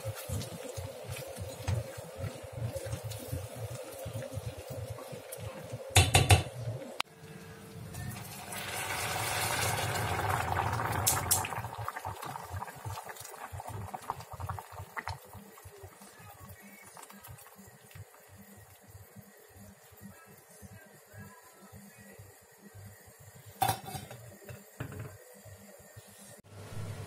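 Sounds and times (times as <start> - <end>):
water pouring into a pot: 0.0 - 6.1, 8.0 - 20.0.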